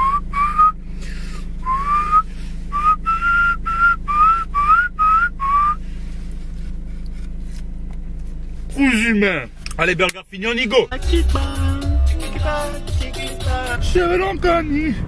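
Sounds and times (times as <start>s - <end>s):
person whistling a tune: 0.0s - 0.8s, 1.6s - 5.8s
steady low hum: 0.0s - 15.0s.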